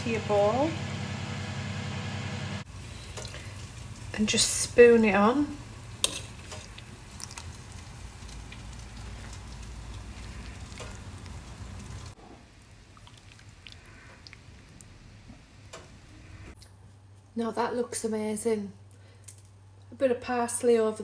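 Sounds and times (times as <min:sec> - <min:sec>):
sauce spooning and pouring: 0:05.8 - 0:12.0, 0:12.8 - 0:14.8.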